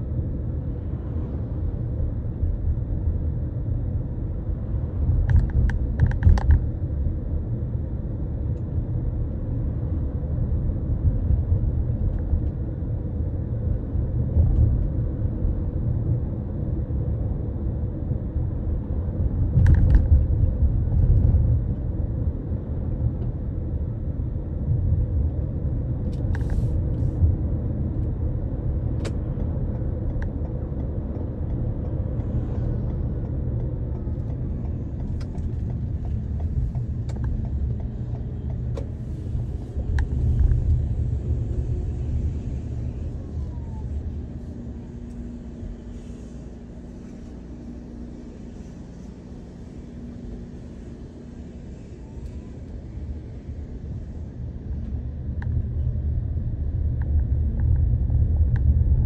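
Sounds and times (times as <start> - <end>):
car road and engine rumble: 0.0 - 59.0.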